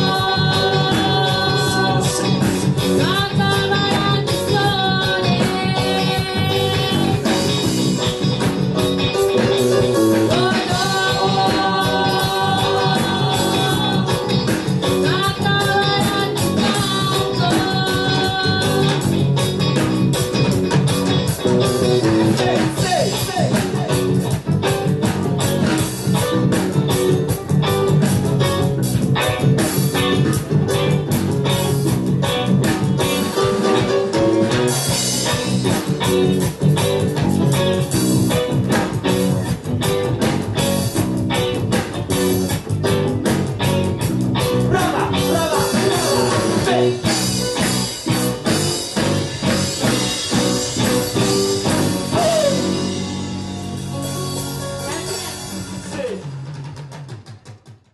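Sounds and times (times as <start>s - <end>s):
keyboard: 0.0s - 57.0s
electric guitars: 0.0s - 57.6s
bass guitar: 0.0s - 57.9s
drums: 0.0s - 57.9s
reggae band playing: 0.0s - 57.9s.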